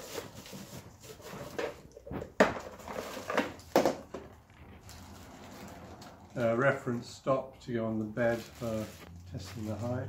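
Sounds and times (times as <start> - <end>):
plastic toolbox knocking: 1.6 - 4.4.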